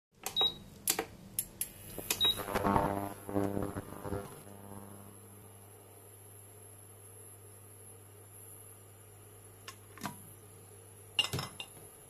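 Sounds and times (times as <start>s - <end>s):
cooker low hum: 1.6s - 12.0s
faint high whine: 2.0s - 9.2s.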